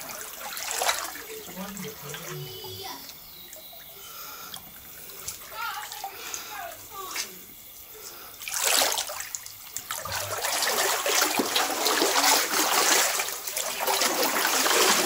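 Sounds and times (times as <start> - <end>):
water running and splashing: 0.0 - 15.0.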